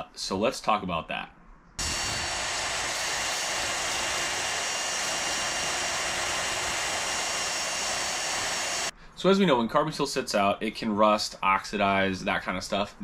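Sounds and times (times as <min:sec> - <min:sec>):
electric drill sanding steel: 0:01.8 - 0:08.9.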